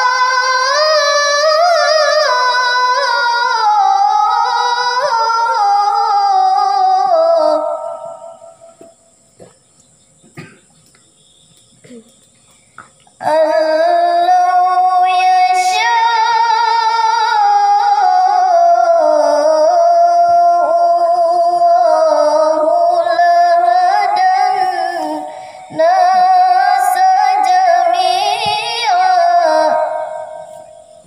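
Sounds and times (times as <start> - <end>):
girl chanting into microphone: 13.2 - 30.7.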